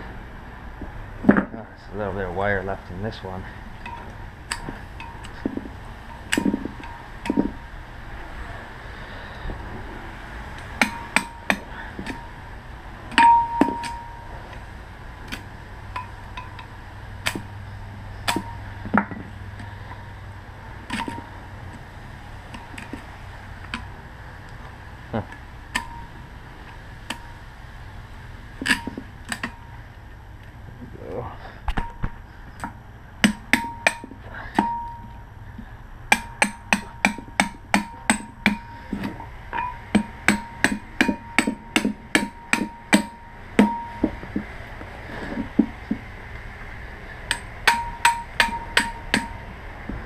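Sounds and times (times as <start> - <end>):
steel tool striking metal: 3.8 - 7.6, 10.6 - 12.4, 13.1 - 14.3, 18.2 - 19.2, 25.7 - 26.2, 28.6 - 29.7, 33.2 - 35.2, 36.1 - 44.2, 47.3 - 49.4.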